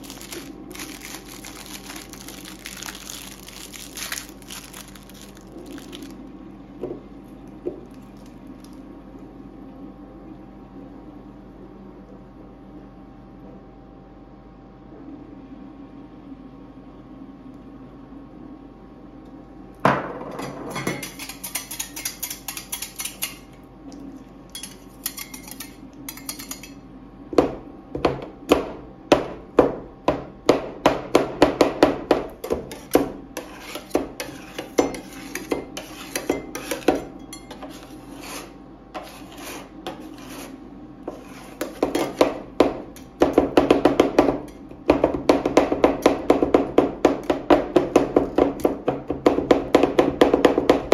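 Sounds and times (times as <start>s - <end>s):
metal spatulas clacking: 20.8s - 23.5s
metal spatulas scraping steel plate: 32.7s - 42.2s.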